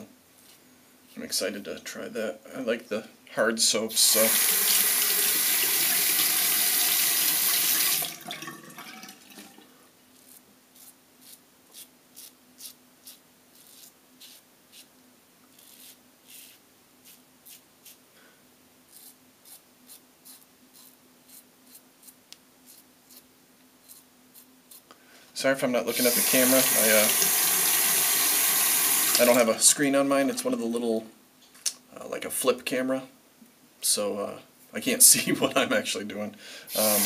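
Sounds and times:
running tap: 4.3s - 9.6s, 25.9s - 29.4s, 36.7s - 37.0s
razor scraping stubble: 10.2s - 14.9s, 15.5s - 18.0s, 18.9s - 24.9s.

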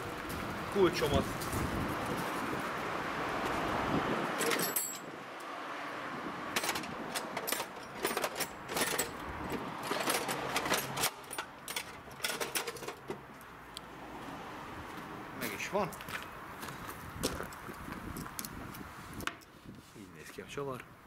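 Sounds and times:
metal hand tools clinking: 4.4s - 5.1s, 6.6s - 9.2s.

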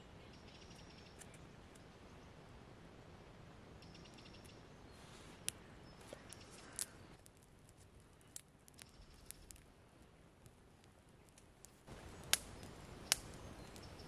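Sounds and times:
campfire crackling and popping: 3.4s - 14.0s.

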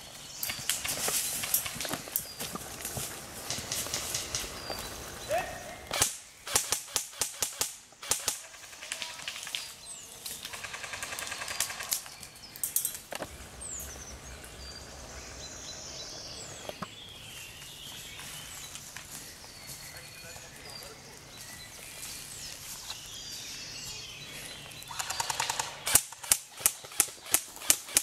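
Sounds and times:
small birds chirping: 0.0s - 28.0s
airsoft guns firing: 5.9s - 9.4s, 24.9s - 28.0s.

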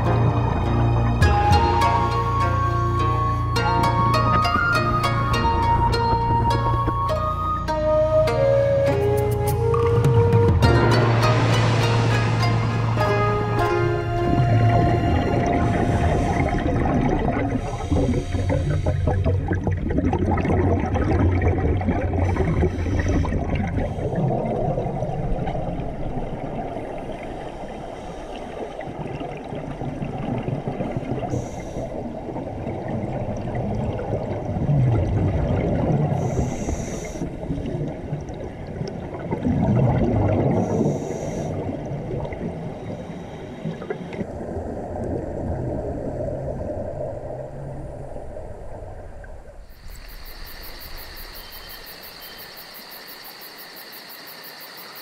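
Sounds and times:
regulator bubbling underwater: 9.6s - 51.3s.

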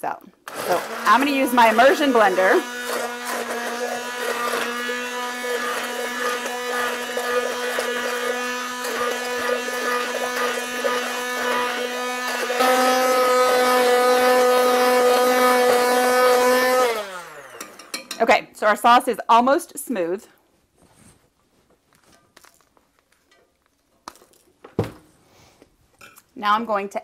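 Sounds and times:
immersion blender running: 0.4s - 18.0s.

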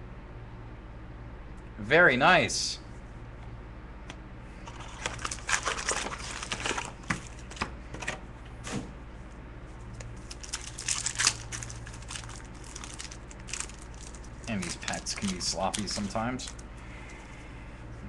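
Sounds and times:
foil wrappers crinkling and tearing: 4.6s - 7.6s, 10.0s - 16.7s
trading cards being handled: 4.6s - 7.7s, 9.8s - 17.4s.

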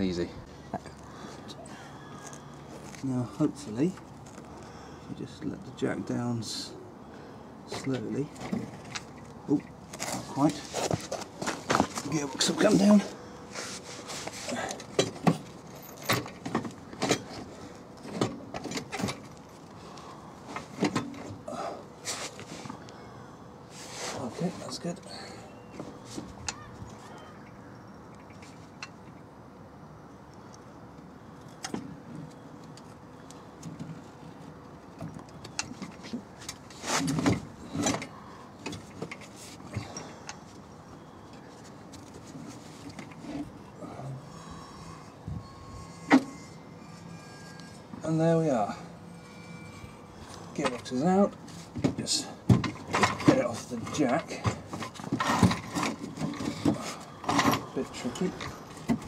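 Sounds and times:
metal scraping: 44.3s - 51.8s.

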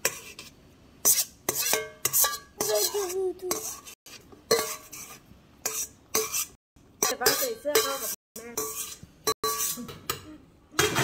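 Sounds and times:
metal spoon scraping steel bowl: 0.0s - 10.2s.

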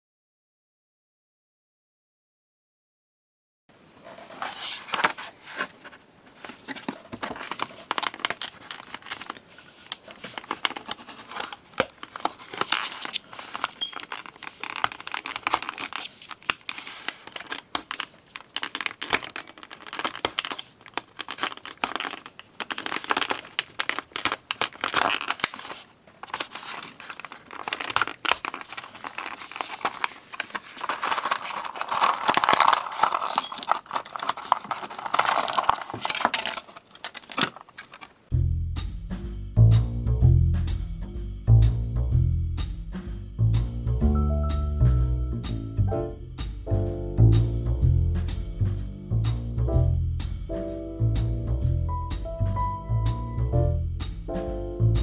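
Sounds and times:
plastic blister pack crackling: 6.4s - 38.3s
card backing tearing: 6.5s - 38.2s
foil bag tearing: 7.3s - 38.2s.

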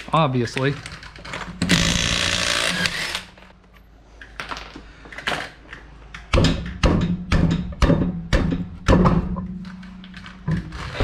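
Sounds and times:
impact wrench hammering: 6.2s - 9.6s.

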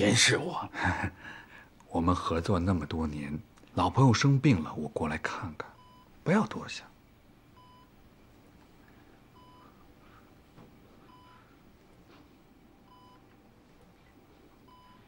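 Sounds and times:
patient monitor beeping: 5.6s - 6.2s, 7.5s - 8.3s, 9.2s - 15.0s.

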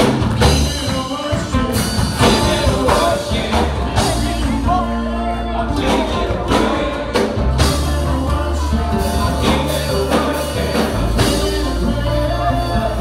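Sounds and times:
drum hits: 0.0s - 5.0s
deep bass notes: 0.0s - 13.0s
live worship band music: 0.0s - 13.0s.

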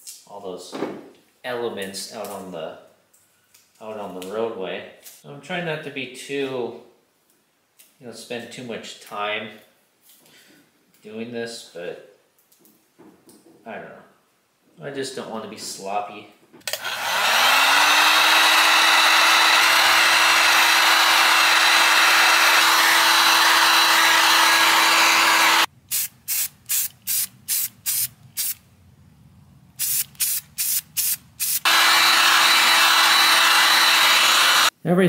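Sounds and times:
spray paint hissing: 25.9s - 28.6s, 29.8s - 31.7s.

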